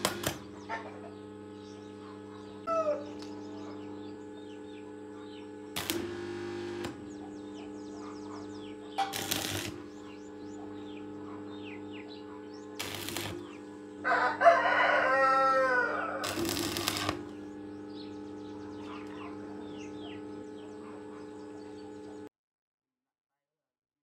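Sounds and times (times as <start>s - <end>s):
steady hum: 0.0s - 22.3s
rooster crowing: 2.7s - 3.2s, 14.0s - 16.8s
faint high bird chirps: 7.0s - 13.6s.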